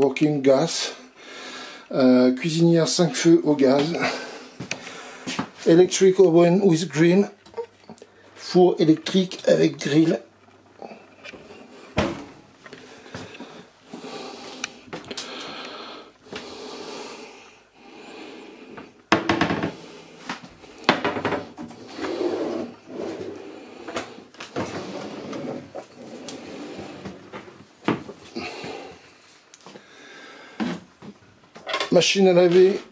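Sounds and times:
wooden cupboard doors and drawers: 0:19.1 - 0:28.2.

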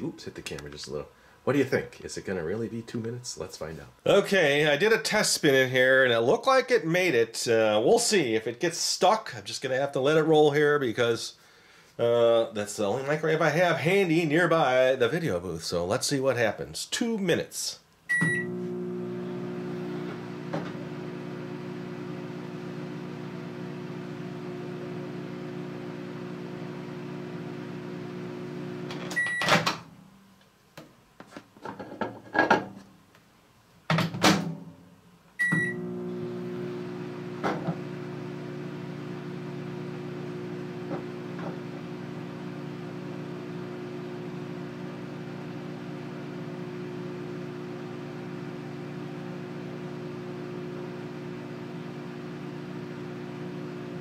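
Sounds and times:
microwave beeps: 0:18.1 - 0:18.7, 0:29.0 - 0:29.6, 0:35.4 - 0:36.2
microwave oven humming: 0:18.1 - 0:29.7, 0:35.4 - 0:54.0.

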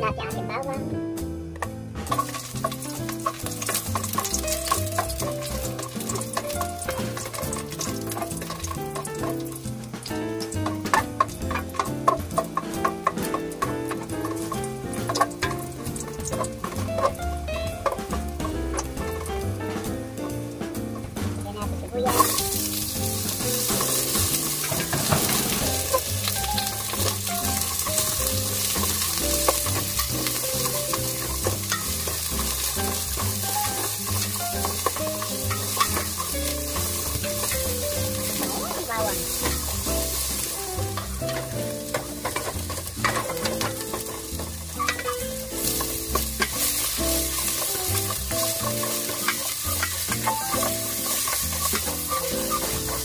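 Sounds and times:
garlic sizzling in hot oil: 0:00.8 - 0:53.0
utensil scraping and tapping pan: 0:01.6 - 0:21.4, 0:22.0 - 0:53.0.

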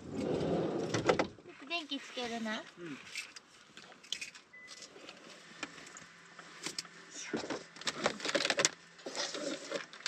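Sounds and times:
clicks and knocks of items: 0:06.6 - 0:10.0
plastic packaging rustling: 0:07.4 - 0:10.0.

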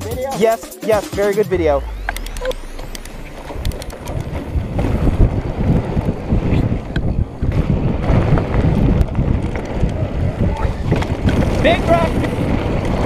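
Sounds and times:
bike clicks and rattles: 0:02.0 - 0:13.0
wind buffeting microphone: 0:02.6 - 0:13.0
tyres rumbling on dirt: 0:02.8 - 0:13.0.

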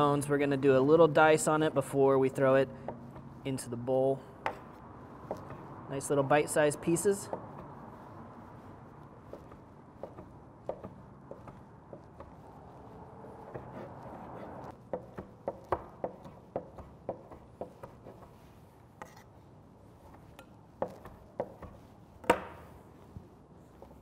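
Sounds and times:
soft rubbing: 0:04.6 - 0:14.8, 0:16.0 - 0:24.0
knife chopping on wooden board: 0:09.3 - 0:12.4, 0:13.4 - 0:18.4, 0:20.8 - 0:22.7.

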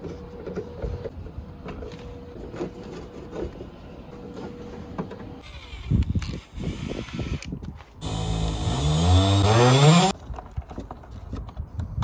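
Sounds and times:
cordless drill motor whining: 0:05.4 - 0:10.1.

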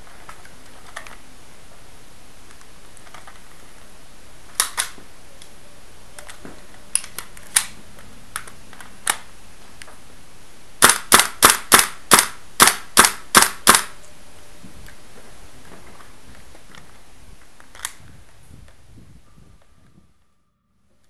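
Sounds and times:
airsoft gun shots: 0:10.8 - 0:14.0.

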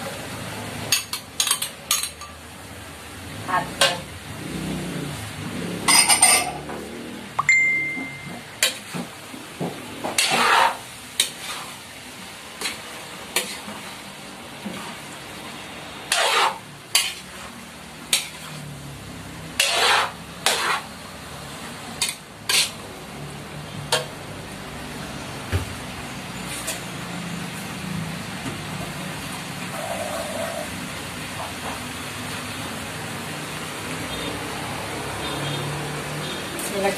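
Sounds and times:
metal spatula scraping a wok: 0:10.0 - 0:11.8, 0:12.6 - 0:14.0, 0:16.1 - 0:18.7, 0:19.5 - 0:21.0, 0:22.0 - 0:22.8, 0:26.4 - 0:26.9.

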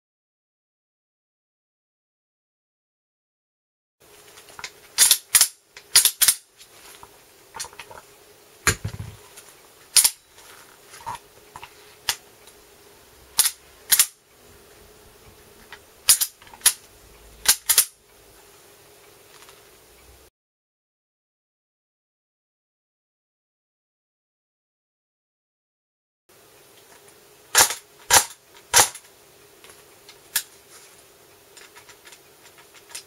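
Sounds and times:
metallic clicks of gun action: 0:05.0 - 0:06.4, 0:10.0 - 0:10.2, 0:13.4 - 0:14.2, 0:16.1 - 0:16.8, 0:17.4 - 0:17.9.

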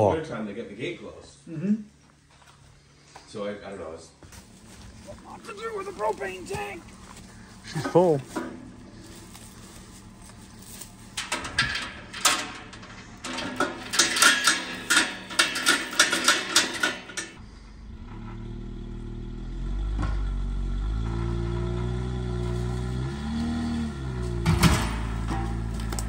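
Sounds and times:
vehicle engine running: 0:04.2 - 0:26.0
metallic clanks and knocks: 0:07.6 - 0:17.4, 0:24.1 - 0:26.0.

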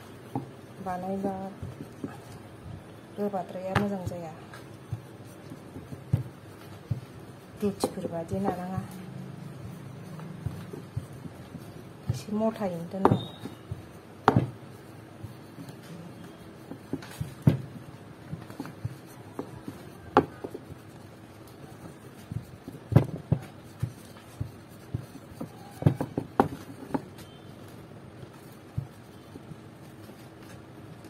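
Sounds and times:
rolling pin rubbing dough: 0:00.0 - 0:31.0
rolling pin knocking on board: 0:03.6 - 0:14.6, 0:16.6 - 0:20.7, 0:22.3 - 0:27.2.

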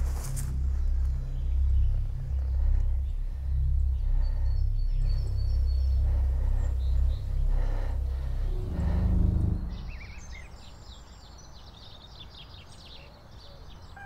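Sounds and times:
loud low rumble: 0:00.0 - 0:11.1
faint high bird chirps: 0:09.7 - 0:14.0.

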